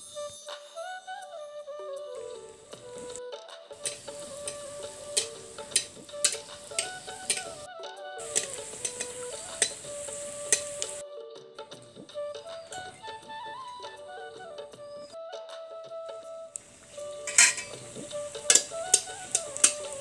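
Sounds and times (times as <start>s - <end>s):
instrumental music: 0.0s - 20.0s
metal ladle clinking on pan: 3.8s - 7.6s, 8.2s - 11.0s, 17.2s - 20.0s
oil sizzling in a pan: 3.8s - 11.0s, 16.6s - 20.0s.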